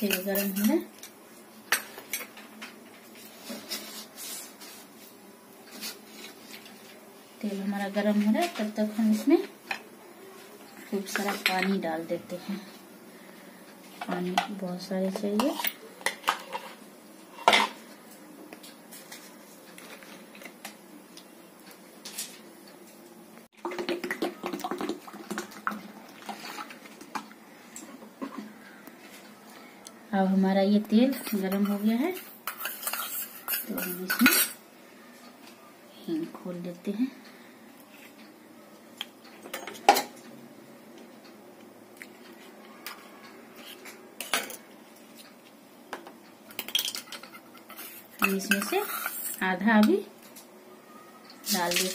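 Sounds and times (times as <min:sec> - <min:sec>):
metal utensils and pots clinking: 0:00.0 - 0:00.9, 0:14.0 - 0:17.8, 0:31.0 - 0:34.6, 0:39.4 - 0:40.2, 0:42.8 - 0:44.7, 0:46.5 - 0:50.1, 0:51.4 - 0:51.9.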